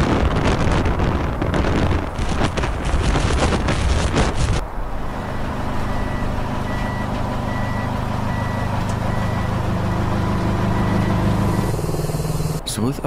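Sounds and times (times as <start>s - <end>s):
truck engine running: 0.0s - 13.0s
reversing alarm beeps: 5.2s - 12.6s.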